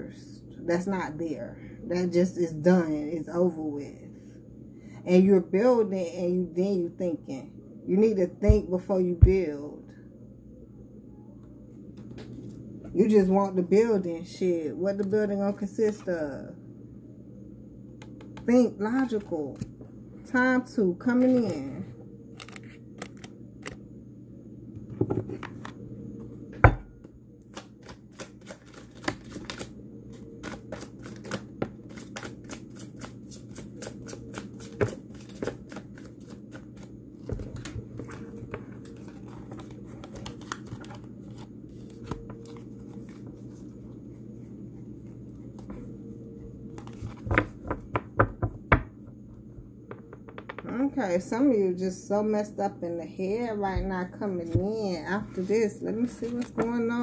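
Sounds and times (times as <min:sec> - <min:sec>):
steady low hum: 0:00.0 - 0:57.0
cards being shuffled: 0:22.4 - 0:23.8, 0:27.4 - 0:43.6, 0:46.7 - 0:47.5.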